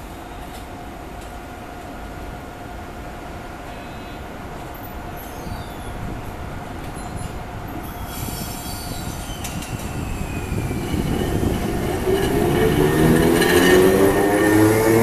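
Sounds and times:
tram accelerating past: 0:04.2 - 0:15.0.

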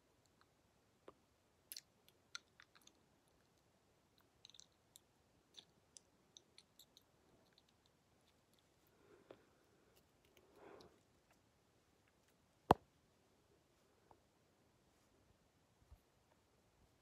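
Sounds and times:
small irregular clicks: 0:00.0 - 0:12.8.

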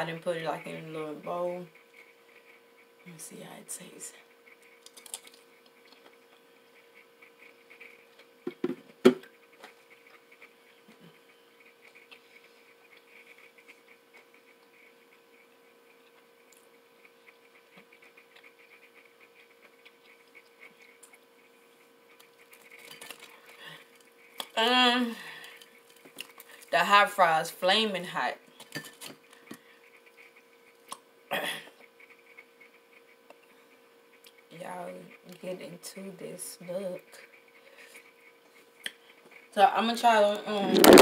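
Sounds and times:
electrical hum: 0:00.0 - 0:41.0
person chewing: 0:04.8 - 0:06.4, 0:22.1 - 0:24.6, 0:30.8 - 0:31.1
handling noise: 0:40.7 - 0:41.0.

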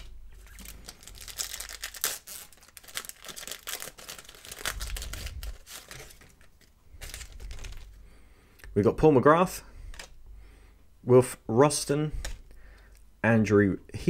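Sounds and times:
wrapper tearing and crinkling: 0:00.0 - 0:08.0.

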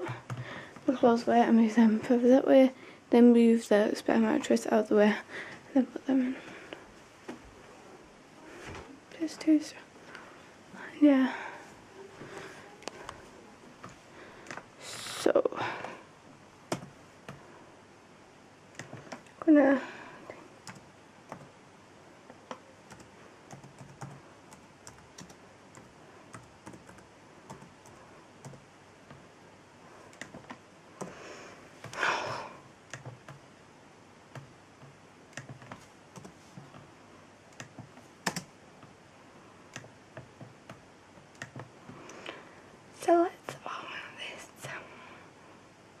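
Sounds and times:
computer keyboard typing: 0:00.0 - 0:00.4, 0:16.7 - 0:17.4, 0:20.6 - 0:21.5, 0:22.5 - 0:29.2, 0:30.1 - 0:31.1, 0:32.9 - 0:33.4, 0:34.3 - 0:36.8, 0:37.5 - 0:38.9, 0:39.7 - 0:41.7.

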